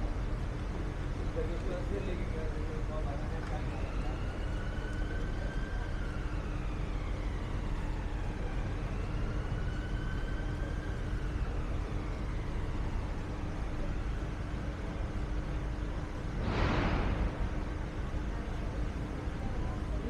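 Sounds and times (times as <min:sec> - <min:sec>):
low steady hum: 0:00.0 - 0:20.0
street traffic noise: 0:00.0 - 0:20.0
siren wailing: 0:01.8 - 0:16.0.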